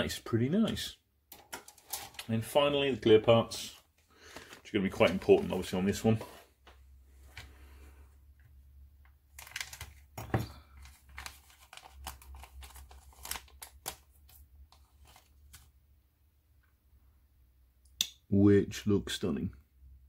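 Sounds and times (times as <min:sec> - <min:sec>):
plastic bag crinkling: 0:04.2 - 0:05.9, 0:09.3 - 0:15.6.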